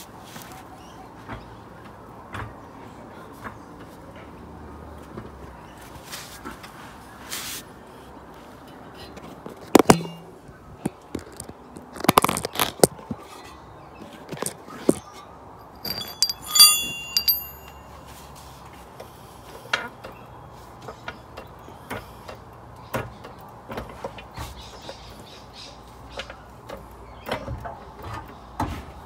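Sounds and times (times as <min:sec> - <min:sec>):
metal clicks and knocks: 0:15.6 - 0:17.9
loud ringing metallic clang: 0:15.7 - 0:18.0.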